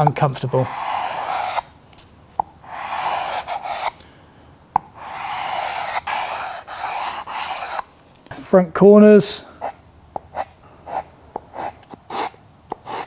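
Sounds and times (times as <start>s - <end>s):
sandpaper rasping on wood: 0.6s - 1.6s, 2.7s - 4.0s, 5.0s - 7.8s.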